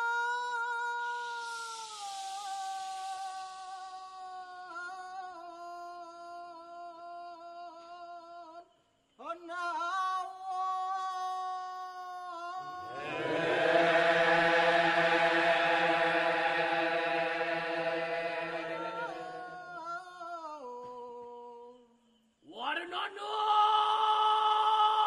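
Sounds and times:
single voice chanting: 12.4s - 21.0s
large chorus chanting: 12.6s - 20.4s.

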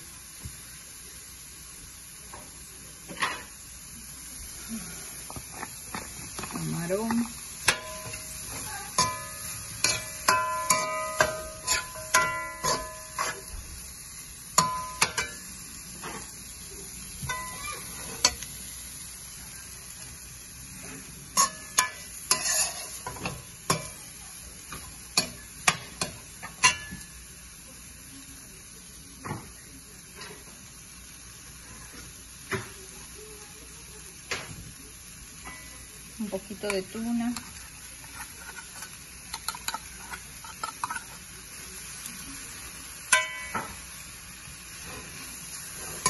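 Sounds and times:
food sizzling: 0.0s - 46.0s
utensil scraping pan: 5.5s - 13.5s, 20.8s - 24.0s, 37.3s - 41.2s
utensil clinking on pan: 6.4s - 13.6s, 14.5s - 16.3s, 17.2s - 18.4s, 21.3s - 24.0s, 24.7s - 27.2s, 36.6s - 41.2s, 43.1s - 43.9s.

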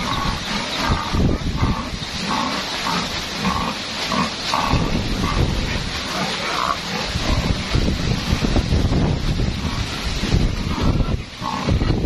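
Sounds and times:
wind buffeting microphone: 0.0s - 2.3s, 4.6s - 6.1s, 6.8s - 12.0s
pig grunting: 0.0s - 7.9s, 9.5s - 12.0s.

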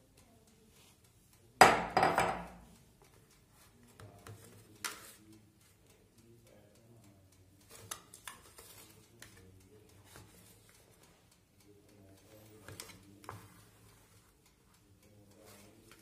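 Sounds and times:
spatula scraping batter in tin: 12.6s - 14.3s.

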